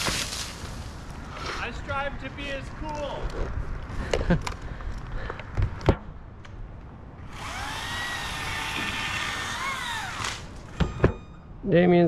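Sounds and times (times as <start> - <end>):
electric chainsaw whine: 7.2 - 10.6.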